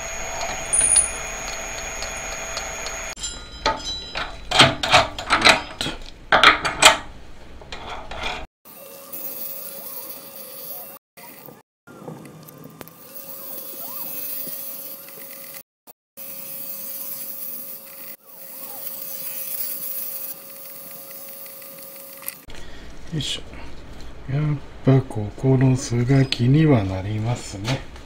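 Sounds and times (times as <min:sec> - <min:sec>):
milling machine hum: 0:00.0 - 0:03.2.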